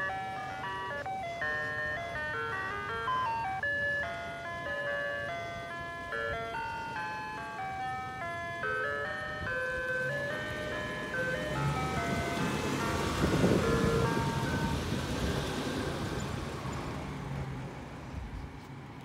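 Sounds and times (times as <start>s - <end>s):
chiming jingle over loudspeaker: 0.0s - 14.9s
truck rumble: 0.0s - 19.0s.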